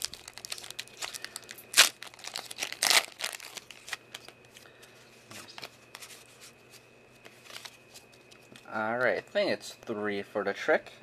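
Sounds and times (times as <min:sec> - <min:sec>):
foil wrapper crinkling and tearing: 0:00.0 - 0:04.4
cards being handled: 0:00.0 - 0:09.2.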